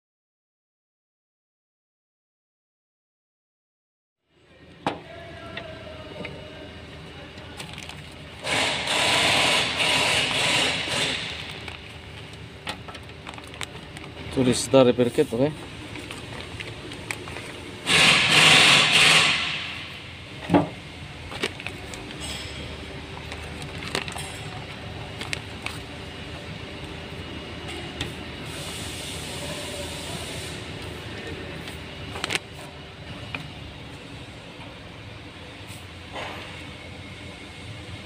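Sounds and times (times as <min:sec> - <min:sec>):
steady low hum: 0:04.3 - 0:38.0
plastic bag crinkling: 0:07.6 - 0:08.2, 0:13.1 - 0:14.3, 0:23.2 - 0:25.9.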